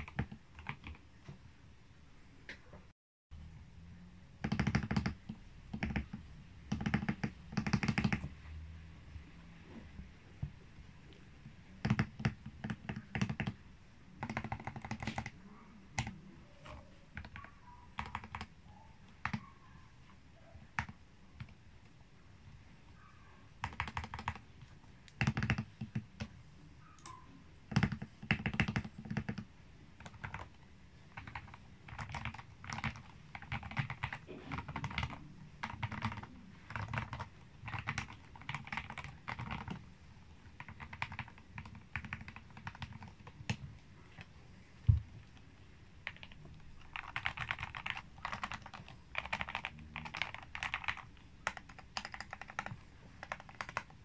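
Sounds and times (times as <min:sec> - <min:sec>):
typing on mechanical keyboard: 0:00.0 - 0:01.1, 0:04.4 - 0:08.3, 0:11.8 - 0:13.6, 0:14.2 - 0:19.5, 0:20.6 - 0:21.6, 0:23.6 - 0:26.3, 0:27.0 - 0:44.3, 0:46.0 - 0:54.0.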